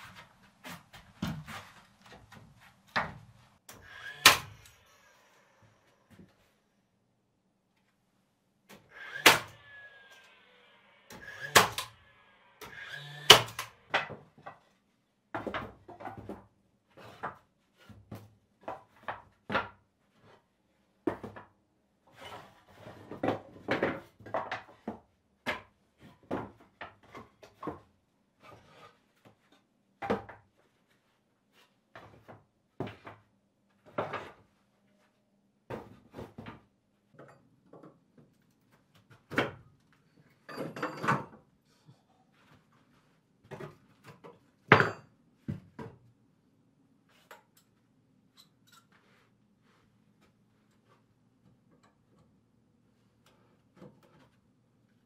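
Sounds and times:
cordless drill whirring: 12.6s - 13.8s.

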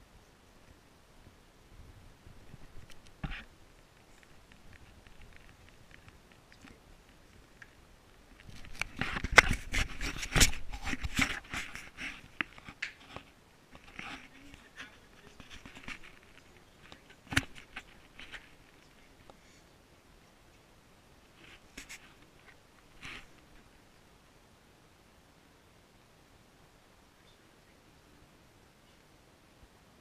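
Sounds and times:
camera handling noise: 2.7s - 3.5s, 8.4s - 14.3s, 15.4s - 18.8s.

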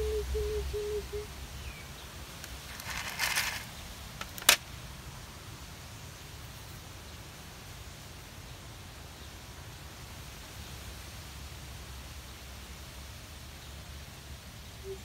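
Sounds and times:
kibble rattling in plastic container: 2.5s - 4.6s
container clack: 2.7s - 4.6s.

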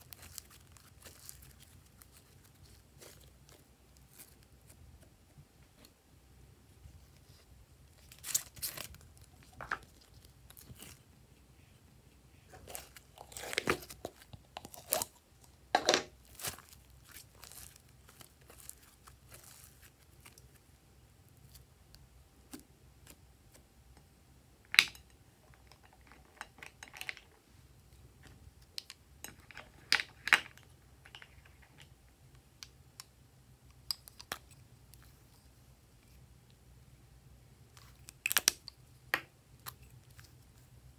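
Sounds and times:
slime crackling and popping: 0.0s - 4.4s, 16.2s - 20.6s, 37.7s - 38.8s.

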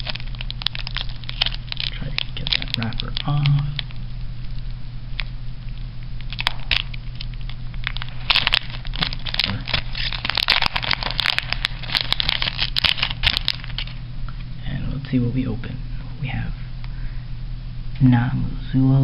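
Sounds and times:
plastic wrapper crinkling: 0.0s - 14.0s.

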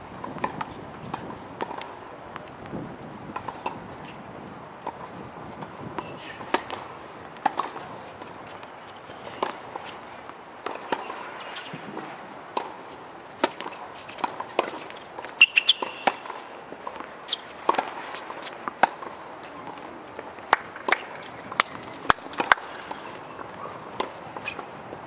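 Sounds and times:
balls bouncing on hard court: 6.0s - 10.0s, 10.6s - 24.6s
rackets hitting tennis balls: 6.0s - 24.6s.

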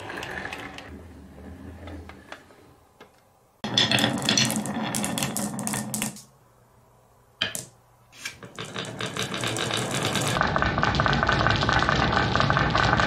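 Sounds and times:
marbles clattering into metal bed: 3.6s - 6.3s, 8.3s - 13.0s
marbles rolling down wooden channels: 3.6s - 6.3s, 8.4s - 13.0s.

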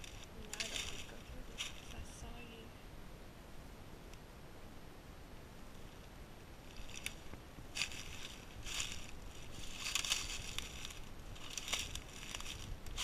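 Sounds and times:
footsteps crunching through dry leaves: 0.0s - 2.1s, 6.7s - 13.0s.

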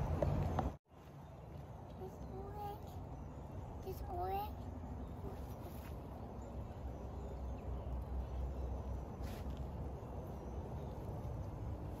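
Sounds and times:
soft rustle: 5.2s - 6.2s, 9.2s - 9.8s.

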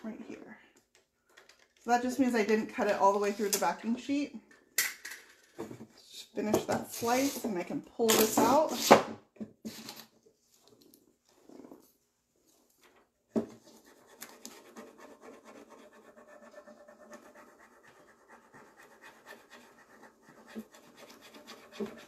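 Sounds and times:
scratchy rubbing and rustling: 13.5s - 22.0s.

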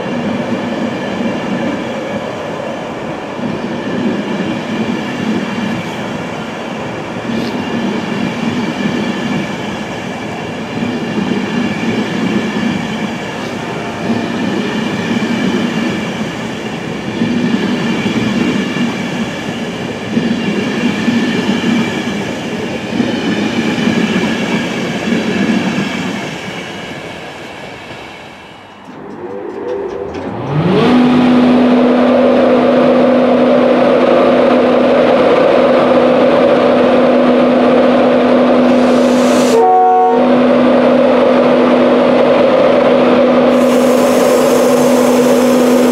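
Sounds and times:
train wheels rumbling: 0.0s - 45.9s
locomotive electric drone: 28.7s - 45.9s.

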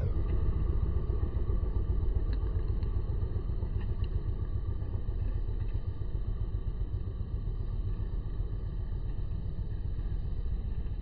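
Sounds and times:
low uneven rumble: 0.0s - 11.0s.

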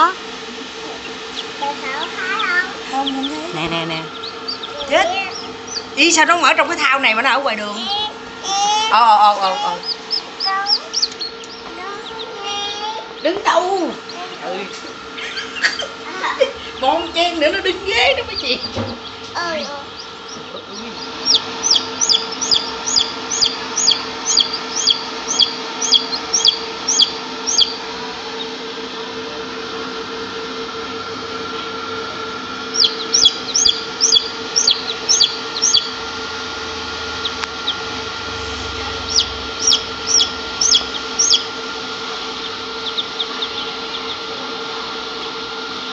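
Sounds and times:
incubator hum: 0.0s - 45.9s
chick peeping: 0.9s - 6.4s, 9.0s - 15.9s, 18.0s - 28.6s, 32.7s - 36.0s, 37.2s - 41.6s, 42.3s - 44.3s.

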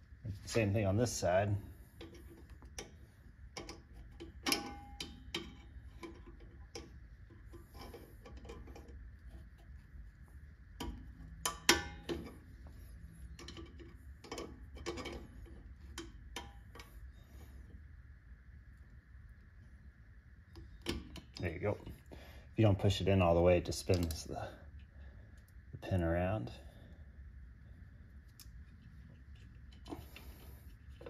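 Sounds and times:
small metallic clicks and taps: 2.0s - 9.7s, 10.7s - 17.1s, 23.9s - 25.6s.

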